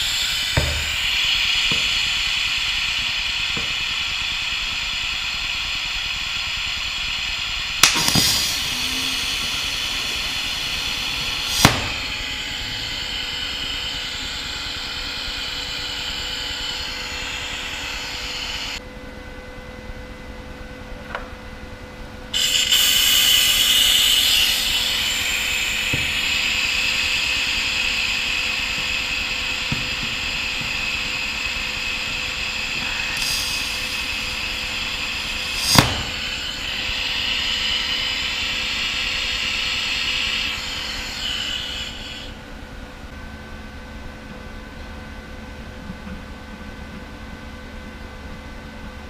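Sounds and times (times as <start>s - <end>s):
welding arc hissing: 0.0s - 18.8s, 22.3s - 43.1s
sharp crack: 7.8s - 8.8s, 11.4s - 12.2s, 35.5s - 36.6s.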